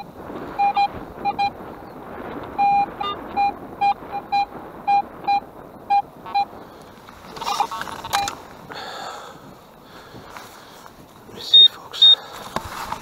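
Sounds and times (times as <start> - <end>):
metal detector beeping: 0.0 - 1.6, 2.6 - 6.6, 7.4 - 8.4, 11.5 - 12.2.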